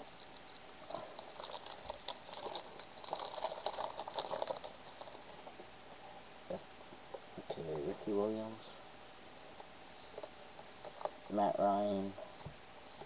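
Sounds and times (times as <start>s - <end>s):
plastic wrapper crinkling: 0.9s - 5.4s.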